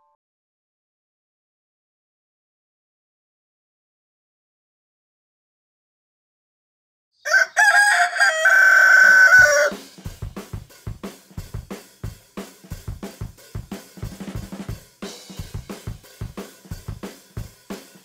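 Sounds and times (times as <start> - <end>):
rooster crowing: 7.2 - 9.8
drum kit beat: 8.6 - 18.0.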